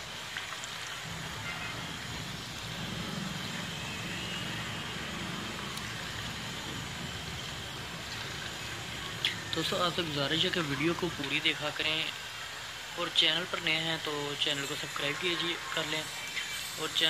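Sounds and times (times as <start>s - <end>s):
food deep-frying in hot oil: 0.0s - 17.0s
low hum: 0.8s - 11.3s.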